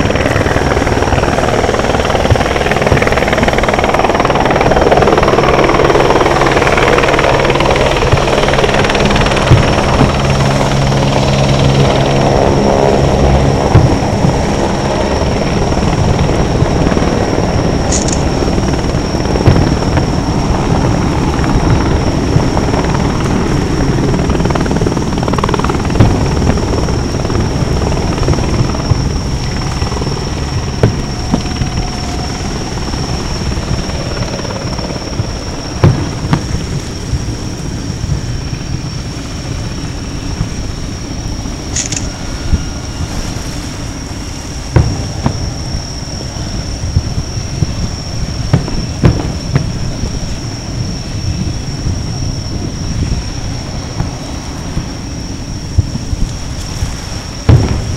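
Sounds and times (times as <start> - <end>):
distant firework booms: 9.2 - 10.6, 13.4 - 14.7, 19.4 - 21.0, 25.9 - 29.1, 30.7 - 31.5, 35.2 - 37.3, 44.7 - 45.7, 46.9 - 50.2, 57.4 - 57.9
sharp firework bangs: 35.8 - 36.8, 44.7 - 45.5, 48.5 - 50.0, 57.4 - 57.9.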